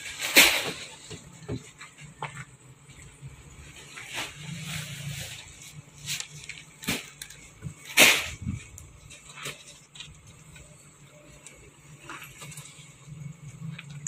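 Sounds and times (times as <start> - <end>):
plastic crates clattering: 0.0 - 2.6, 3.5 - 10.8.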